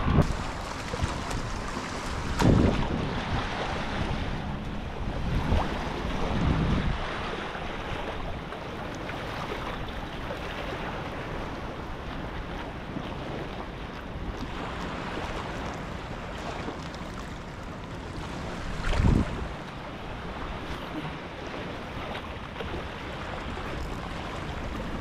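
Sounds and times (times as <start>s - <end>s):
waves washing against rocks: 0.0s - 8.3s, 14.2s - 25.0s
wind on microphone: 0.0s - 25.0s.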